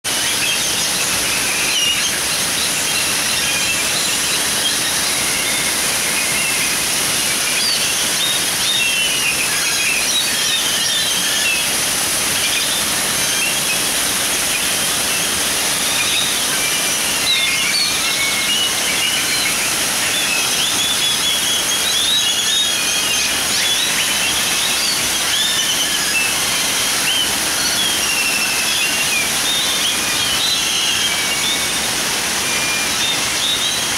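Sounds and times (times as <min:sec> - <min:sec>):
birds chirping and whistling: 0:00.1 - 0:33.9
waterfalls splashing into pond: 0:00.1 - 0:33.9.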